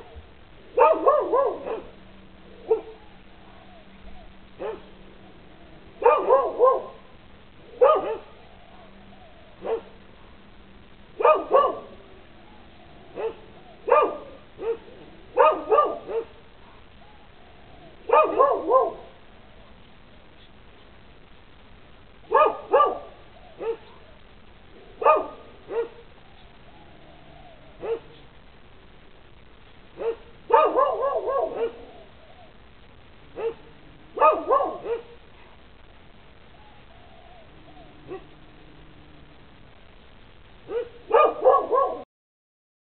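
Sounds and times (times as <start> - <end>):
dogs barking: 0.8 - 2.0, 2.6 - 5.0, 5.9 - 10.0, 11.2 - 19.3, 22.2 - 24.2, 25.0 - 28.3, 29.9 - 32.6, 33.3 - 35.6, 36.6 - 38.5, 40.6 - 42.0.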